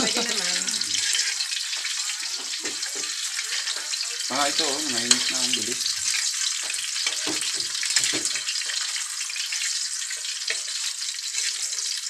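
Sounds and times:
sausages sizzling in oil: 0.0s - 12.0s
spatula knocking on pan: 6.6s - 8.7s.

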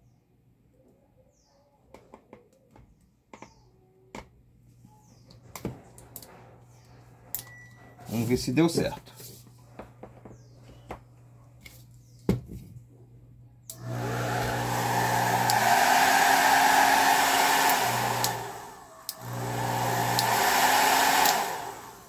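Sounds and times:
hair dryer whirring: 13.7s - 22.0s.

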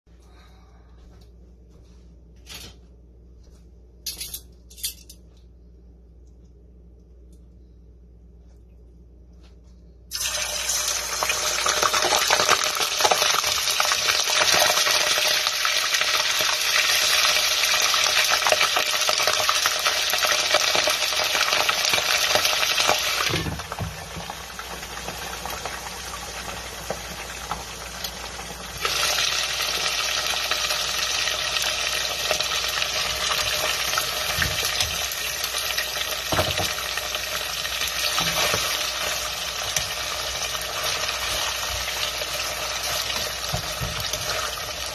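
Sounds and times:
fish sizzling in hot oil: 10.1s - 44.9s.

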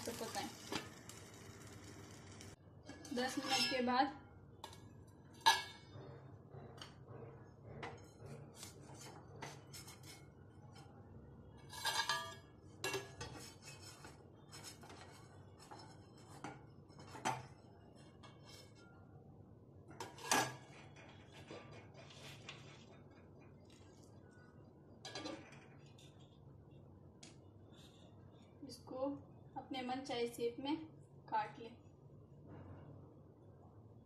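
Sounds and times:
metal spatula scraping steel pan: 0.0s - 4.0s, 11.6s - 18.8s, 19.9s - 23.0s.

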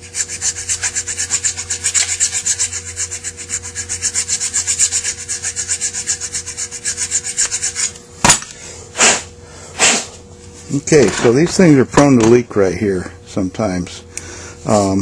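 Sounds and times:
file rasping back and forth: 0.0s - 8.0s.

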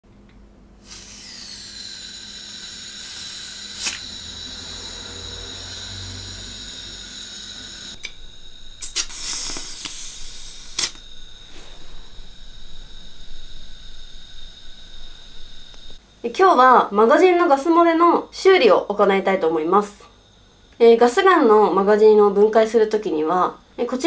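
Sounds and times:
spurts of escaping gas: 0.8s - 8.0s, 8.8s - 11.8s
gas hissing with whistling tones: 0.8s - 16.4s.

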